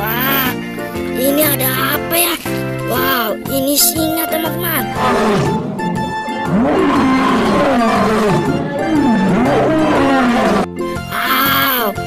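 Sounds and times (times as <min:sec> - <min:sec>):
background music: 0:00.0 - 0:12.0
lion roaring: 0:04.9 - 0:10.7.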